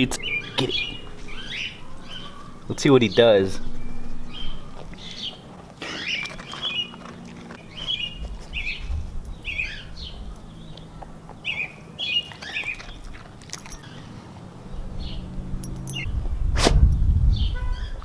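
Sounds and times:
bird chirping: 0.0 - 14.1.

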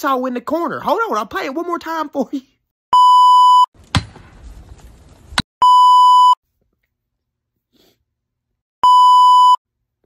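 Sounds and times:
electronic test-tone bleep: 5.6 - 6.4, 8.8 - 9.6.

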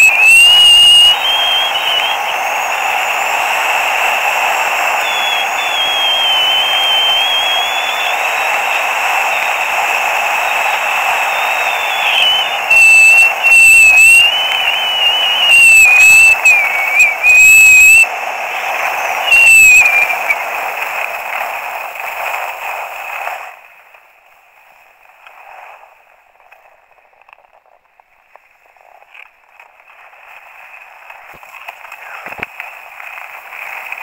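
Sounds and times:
wavering whistle: 0.0 - 20.4.

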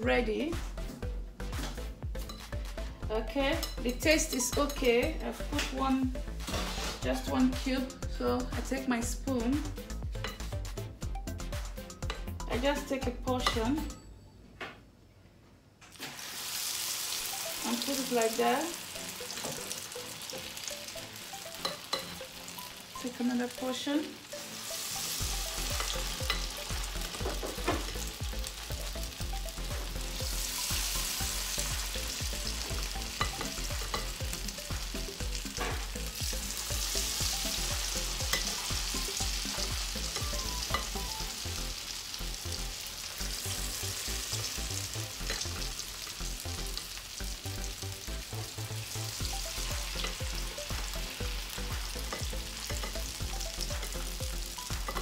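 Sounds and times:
oil sizzling in a frying pan: 15.9 - 55.0
spoon clinking: 21.6 - 22.3, 25.5 - 26.7, 33.1 - 34.1.

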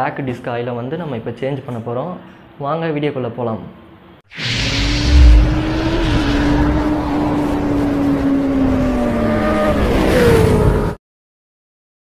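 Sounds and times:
heavy low boom: 4.3 - 8.4
rushing noise: 4.3 - 9.8.

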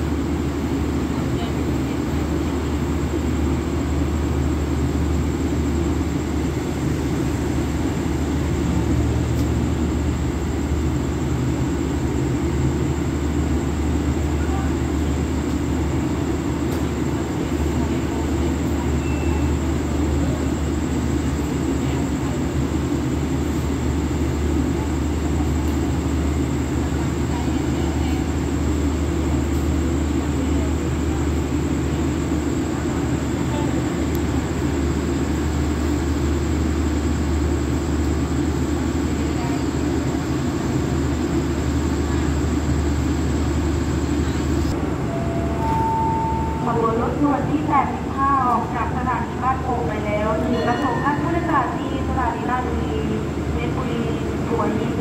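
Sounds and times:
train machinery humming: 0.0 - 55.0.

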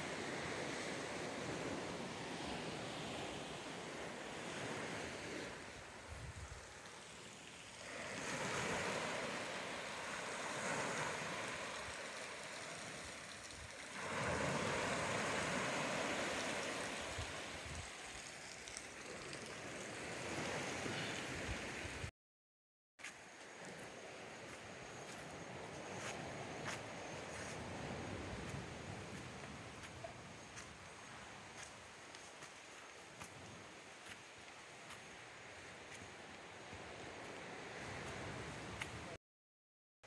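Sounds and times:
waves washing on shore: 0.0 - 22.1.

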